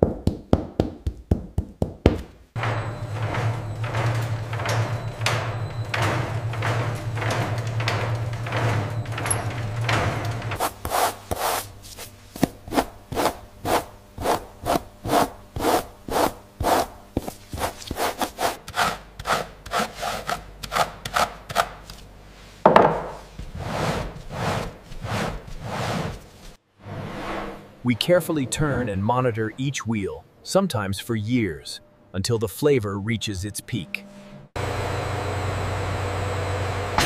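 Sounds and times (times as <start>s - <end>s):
bristle brush scrubbing cheese rind: 12.7s - 21.4s, 23.4s - 26.5s.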